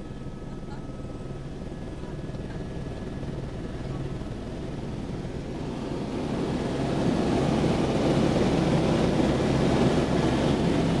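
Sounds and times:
helicopter engine and rotor drone: 0.0s - 11.0s
rushing wind-like noise: 2.8s - 11.0s.

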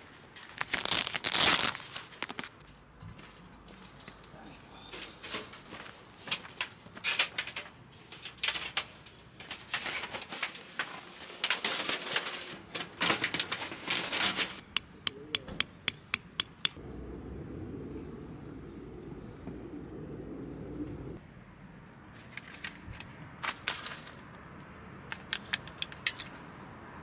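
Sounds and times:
camping gear rustling and clatter: 0.0s - 14.6s, 22.1s - 24.4s
steady low rumble: 16.7s - 21.2s.

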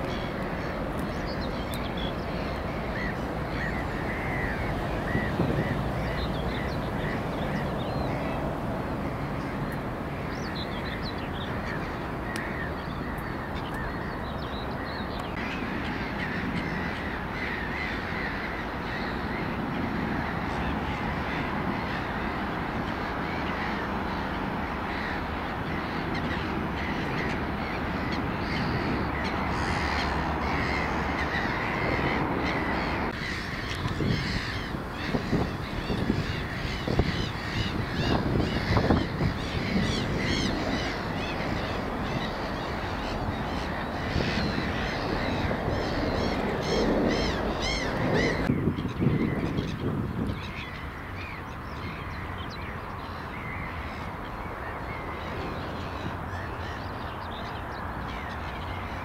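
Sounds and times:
birds calling: 0.0s - 59.0s
outdoor rumble and hiss: 0.0s - 59.0s
wind buffeting microphone: 0.0s - 59.0s
crows cawing: 2.4s - 8.4s, 15.4s - 49.8s.

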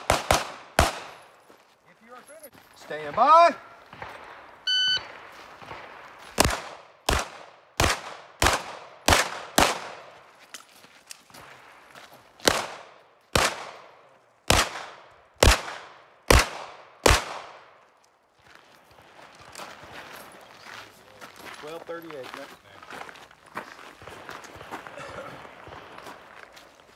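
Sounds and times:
pistol shots echoing: 0.0s - 1.3s, 3.1s - 10.2s, 12.4s - 17.8s.

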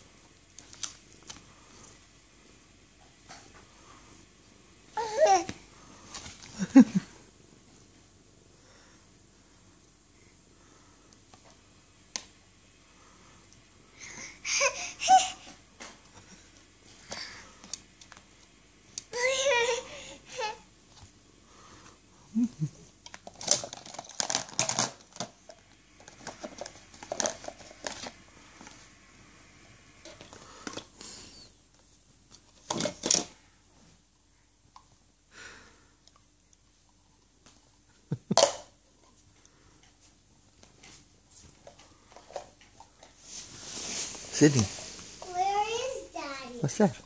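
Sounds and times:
plastic toys clattering: 23.0s - 28.2s, 32.6s - 33.4s.

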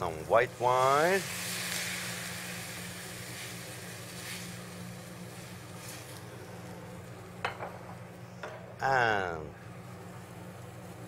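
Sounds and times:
wine sizzling in a hot pan: 0.0s - 8.1s
low steady hum: 0.0s - 11.0s.

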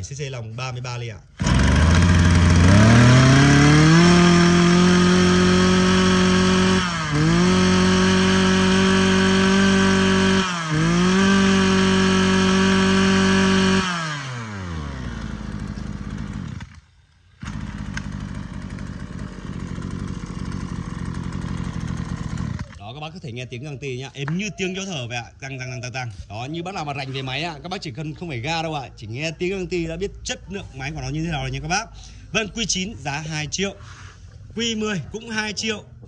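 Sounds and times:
brush cutter engine revving: 1.2s - 23.0s.

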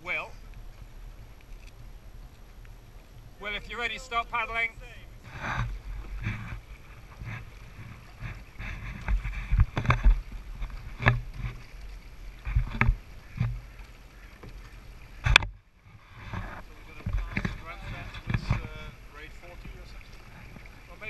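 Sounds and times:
oar blades splashing water: 0.0s - 21.0s
oars knocking in oarlocks: 5.2s - 20.9s.

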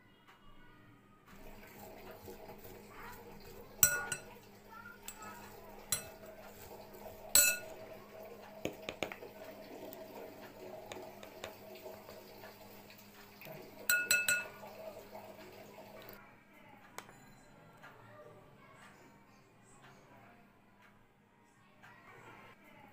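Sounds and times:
metal spoon clinking glass bowl: 1.4s - 8.0s, 13.8s - 14.8s.

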